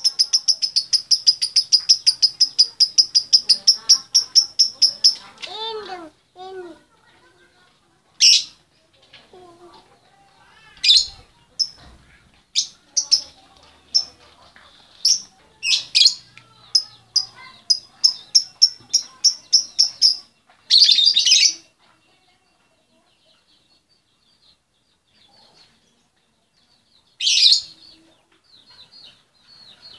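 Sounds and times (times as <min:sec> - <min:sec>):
lovebird chattering: 0:00.0 - 0:05.8, 0:12.6 - 0:14.2, 0:15.0 - 0:21.6
lovebird chirping: 0:00.0 - 0:06.0, 0:15.0 - 0:21.7.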